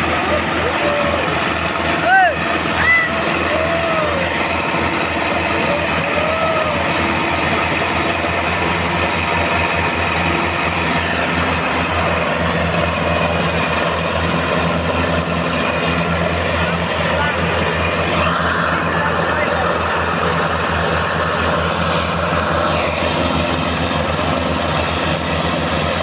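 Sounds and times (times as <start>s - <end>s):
tractor diesel engine running: 0.0s - 26.0s
rising and falling tones: 17.5s - 25.2s.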